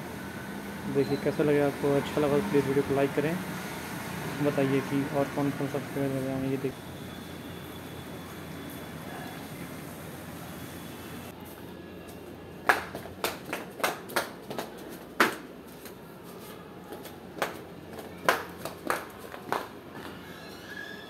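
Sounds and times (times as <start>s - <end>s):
footsteps on concrete stairs: 12.1s - 20.2s.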